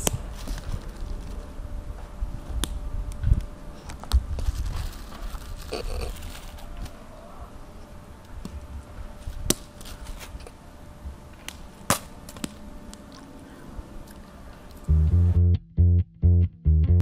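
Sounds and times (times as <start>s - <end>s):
low steady rumble: 14.7s - 17.0s.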